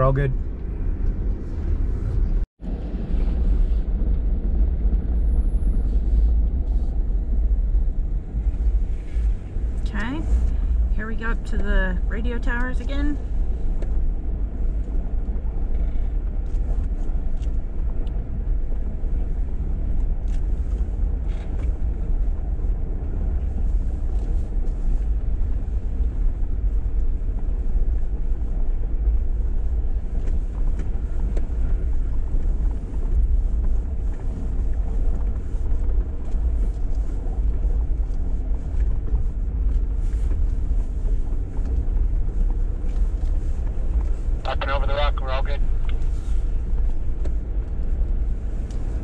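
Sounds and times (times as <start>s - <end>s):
engine and tyres rumbling: 0.0s - 49.0s.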